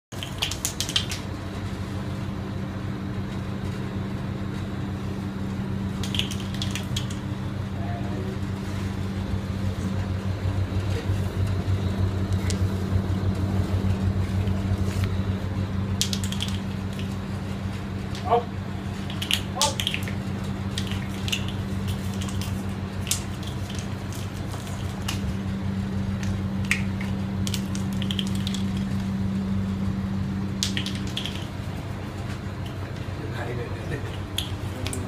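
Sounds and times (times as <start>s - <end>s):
sharp clicking bursts: 0.1s - 1.4s, 6.0s - 7.2s, 16.0s - 17.2s, 19.0s - 25.3s, 26.2s - 29.1s, 30.6s - 31.6s
steady low hum: 0.1s - 35.0s.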